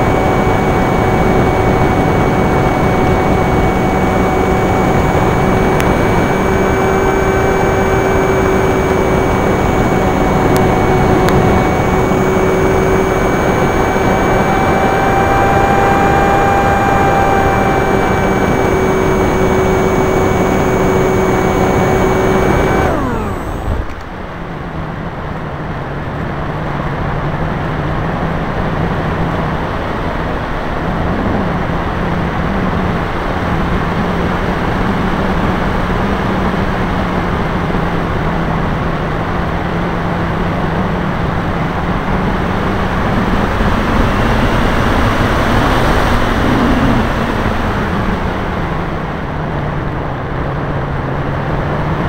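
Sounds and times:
model glider motor whine: 0.0 - 24.4, 31.4 - 49.9
wind rush: 43.1 - 49.0.

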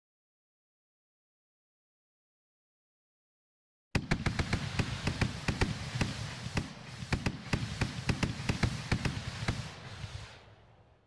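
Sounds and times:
fireworks launch thumps: 4.0 - 10.5
hiss of burning trails: 4.0 - 11.0.

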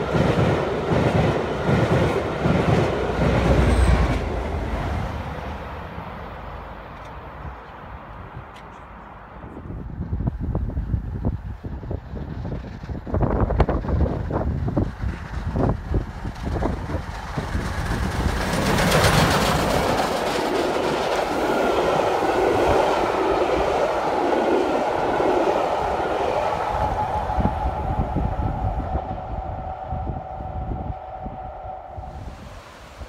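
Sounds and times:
steam locomotive passing: 0.0 - 8.2, 9.0 - 33.0
wind buffeting microphone: 9.4 - 33.0.

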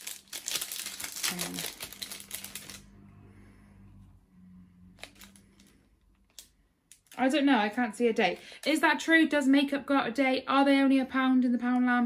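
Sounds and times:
plastic packaging crackling: 0.0 - 3.0, 4.9 - 8.9.

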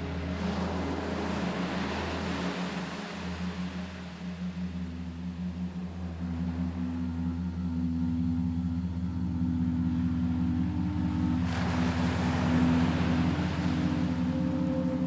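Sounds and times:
sea surf rushing: 0.0 - 7.0, 10.4 - 15.0
low electronic drone: 0.0 - 15.0.

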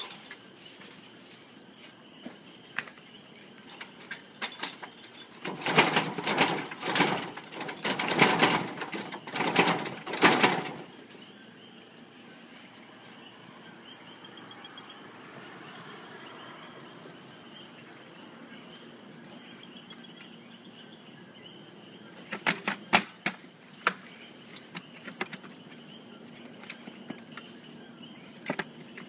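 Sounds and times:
keys jangling in a door lock: 0.0 - 0.4, 3.6 - 10.9.

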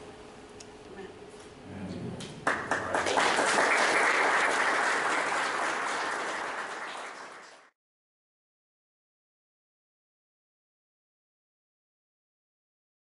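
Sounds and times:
crowd applauding: 2.4 - 7.8.

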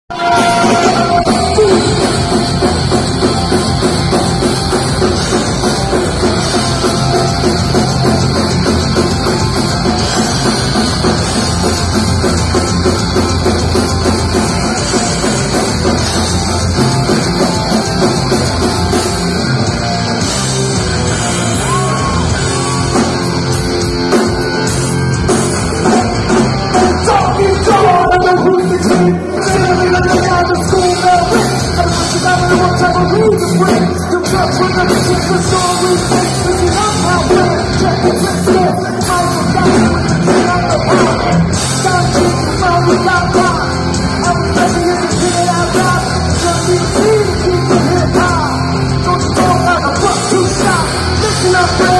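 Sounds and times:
person singing: 0.1 - 10.6, 26.8 - 51.9
drum kit: 0.1 - 51.9
live rock band playing: 0.1 - 51.9.

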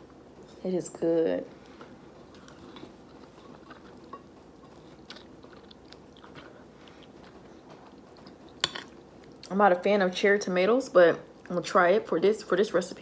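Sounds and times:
person chewing: 1.8 - 9.5.

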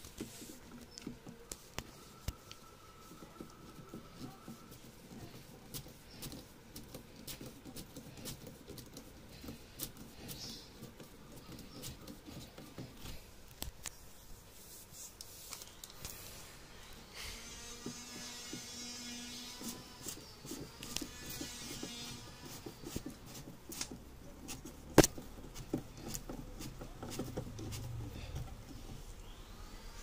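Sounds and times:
screwdriver clicking and scraping: 19.5 - 28.2.

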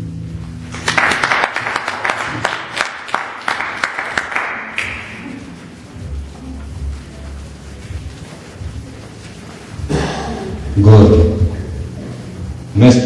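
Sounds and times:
audience applauding: 0.7 - 5.4.

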